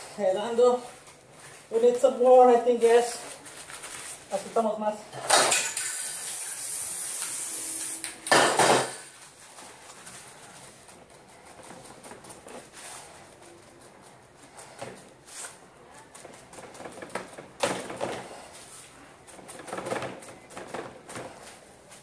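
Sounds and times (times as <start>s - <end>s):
spray paint can hissing: 5.8s - 8.1s.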